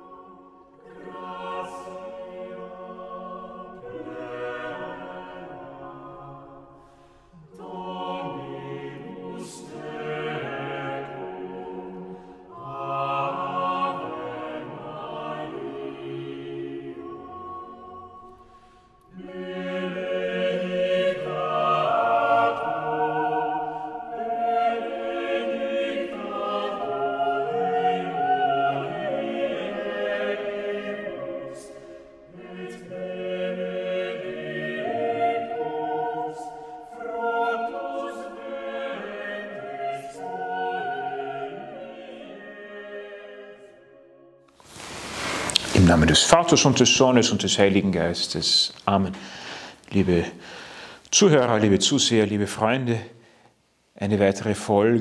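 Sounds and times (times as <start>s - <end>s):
choir singing: 0.0s - 53.1s.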